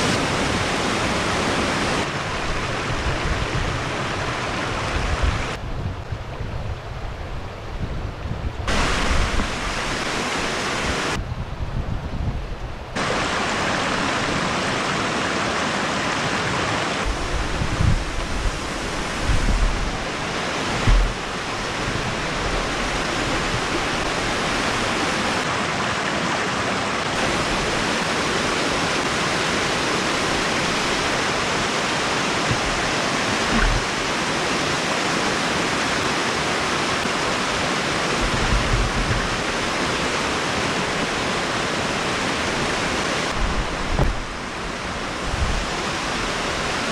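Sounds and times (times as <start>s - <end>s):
water rushing over rocks: 0.0s - 5.6s, 8.7s - 11.2s, 13.0s - 46.9s
low rumbles on microphone: 17.1s - 20.0s, 20.8s - 22.6s, 32.5s - 33.9s, 38.2s - 39.4s.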